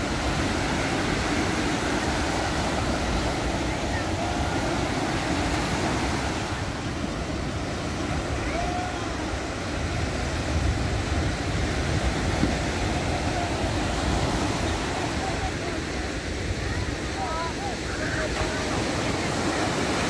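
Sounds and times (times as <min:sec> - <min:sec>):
wind rumble on microphone: 0:00.0 - 0:15.4
small waves washing up beach: 0:00.0 - 0:20.0.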